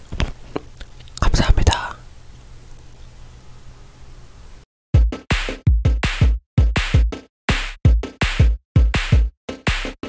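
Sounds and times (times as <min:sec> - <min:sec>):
kick drums: 0:05.0 - 0:10.0.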